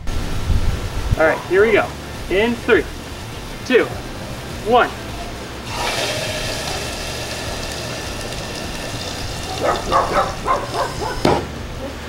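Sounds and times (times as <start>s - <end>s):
butane spraying hiss: 4.2s - 11.6s.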